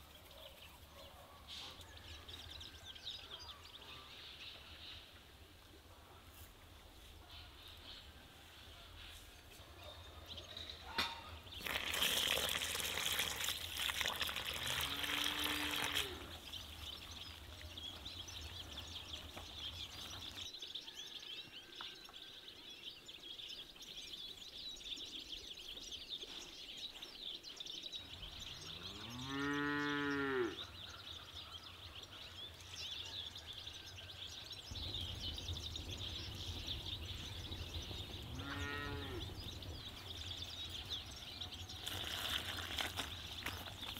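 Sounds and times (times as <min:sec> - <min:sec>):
water pouring from a jug: 0:11.5 - 0:17.6, 0:41.8 - 0:43.9
cow mooing: 0:28.8 - 0:30.6, 0:38.4 - 0:39.3.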